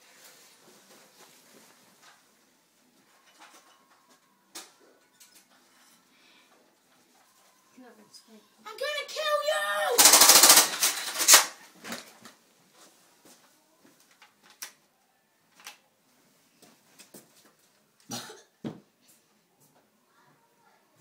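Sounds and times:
rapid rattling clicks: 0:10.0 - 0:11.5.

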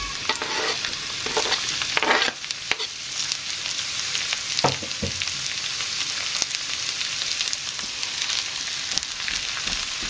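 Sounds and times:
mushrooms sizzling in oil: 0:00.0 - 0:10.0
knife scraping cutting board: 0:00.3 - 0:02.9.

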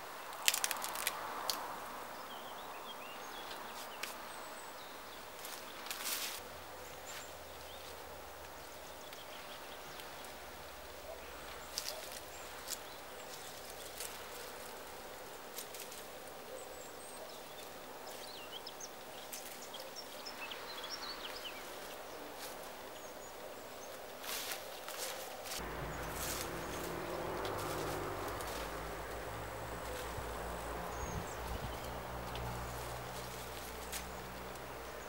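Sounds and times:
plants rustling: 0:00.2 - 0:01.8, 0:05.2 - 0:16.4, 0:23.8 - 0:35.0.

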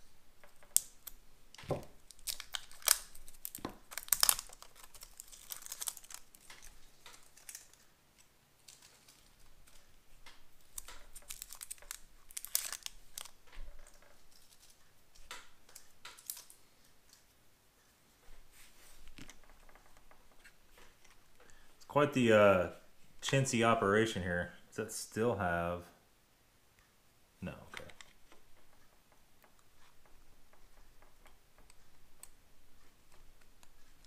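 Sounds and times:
batteries clicking and scraping: 0:02.0 - 0:17.3.

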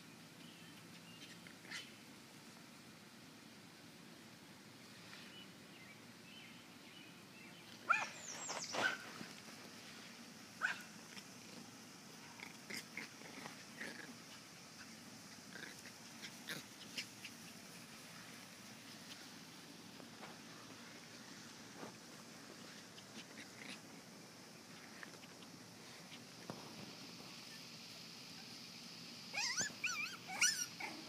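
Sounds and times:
puppies yipping and squealing: 0:07.9 - 0:09.2, 0:12.6 - 0:17.9, 0:29.3 - 0:31.0.

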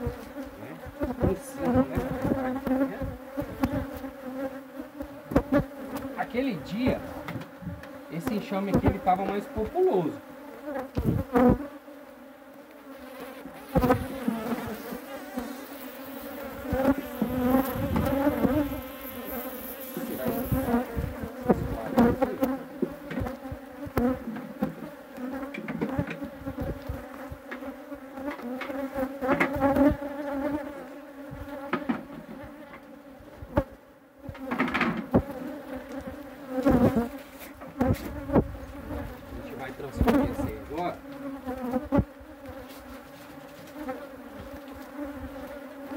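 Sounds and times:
honeybees buzzing: 0:00.0 - 0:45.9
wooden hive boxes knocking: 0:05.3 - 0:09.9, 0:16.7 - 0:18.8, 0:20.0 - 0:30.1, 0:31.4 - 0:32.9, 0:34.3 - 0:35.4.

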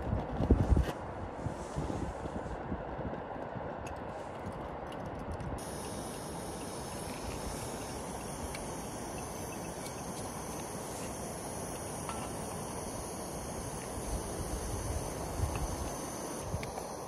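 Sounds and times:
gas stove hissing: 0:05.6 - 0:17.0.

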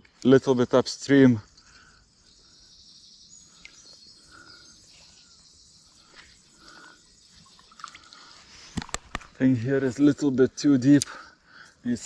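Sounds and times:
high-pitched insect chirring: 0:00.5 - 0:08.4.

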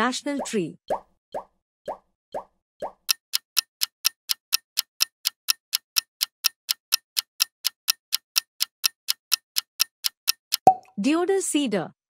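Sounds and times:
clock ticking: 0:02.8 - 0:10.8.

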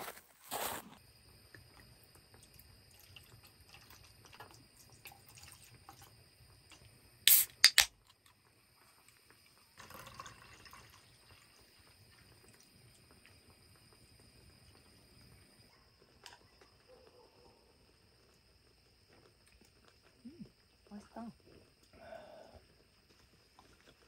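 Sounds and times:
liquid trickling into metal mug: 0:02.5 - 0:06.2, 0:09.8 - 0:13.1
fizzy drink pouring: 0:02.7 - 0:06.2, 0:07.3 - 0:13.6
can pull tab cracking open: 0:07.3 - 0:07.9.

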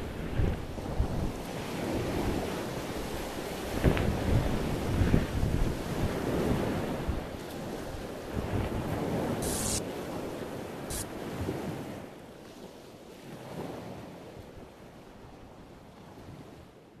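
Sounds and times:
wind: 0:00.0 - 0:17.0
short hissing bursts: 0:09.4 - 0:09.8.

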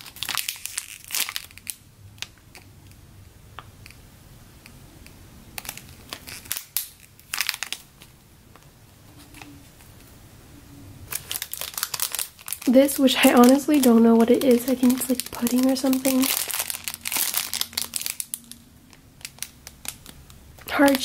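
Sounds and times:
plastic bag crinkling: 0:00.0 - 0:02.7, 0:05.6 - 0:08.1, 0:11.1 - 0:21.0.

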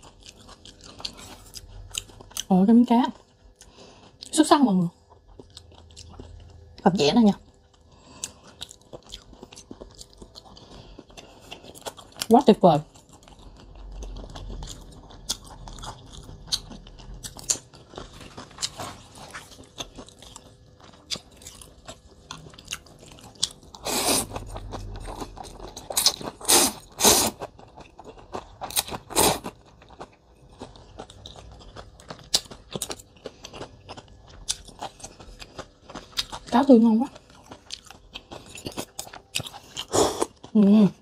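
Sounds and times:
crunchy chewing: 0:00.0 - 0:02.5, 0:03.1 - 0:40.6
slurping noodles: 0:23.8 - 0:24.5, 0:26.0 - 0:27.5.

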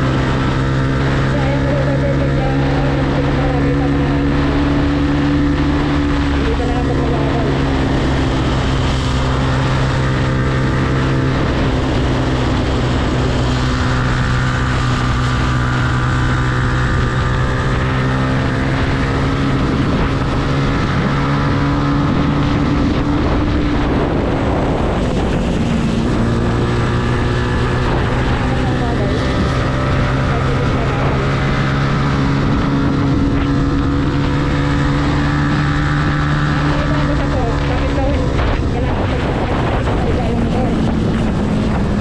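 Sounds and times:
motorcycle engine running: 0:00.0 - 0:42.0
road noise: 0:00.0 - 0:42.0
wind noise: 0:00.0 - 0:42.0.

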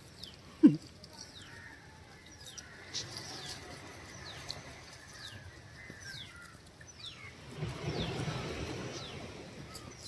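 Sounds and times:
birds whistling downward: 0:05.1 - 0:10.0.

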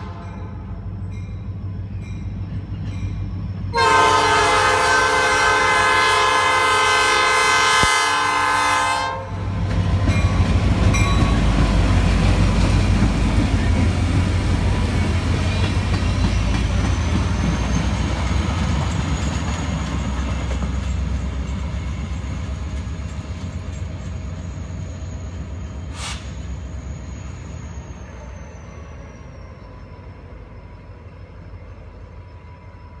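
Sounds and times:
freight train rumbling past: 0:00.0 - 0:33.0
high wheel squeal: 0:14.7 - 0:20.0, 0:23.7 - 0:33.0.

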